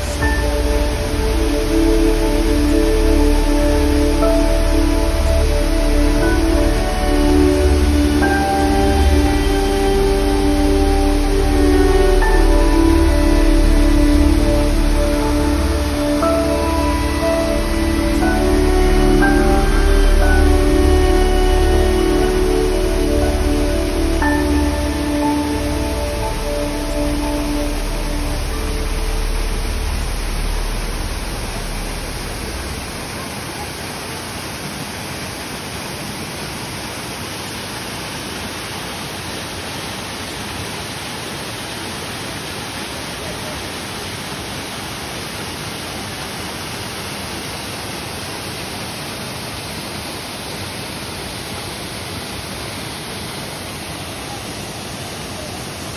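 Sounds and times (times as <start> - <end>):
low background music: 0.0 - 33.2
waterfall roaring: 0.0 - 55.9.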